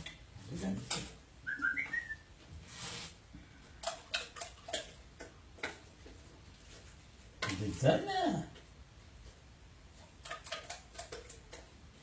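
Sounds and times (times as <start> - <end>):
rustle: 2.4 - 3.3.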